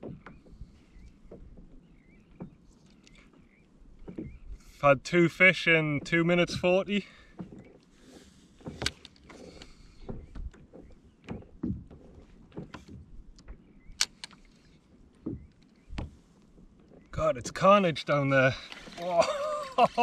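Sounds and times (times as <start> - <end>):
fishing tackle knocks and clicks: 8.6 - 16.2.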